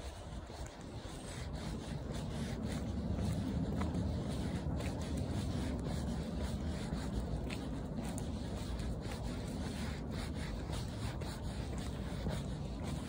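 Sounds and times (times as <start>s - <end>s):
footsteps on a path: 0.0s - 13.0s
wind rumble on microphone: 0.0s - 13.0s.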